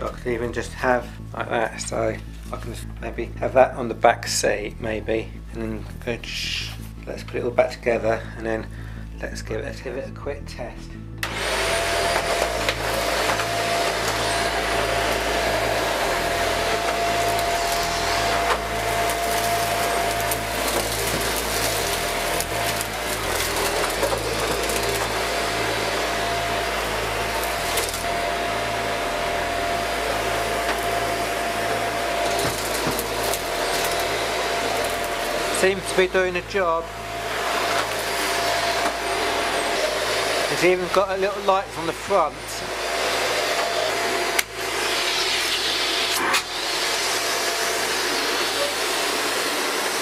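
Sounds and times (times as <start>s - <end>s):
vacuum cleaner running: 11.2s - 50.0s.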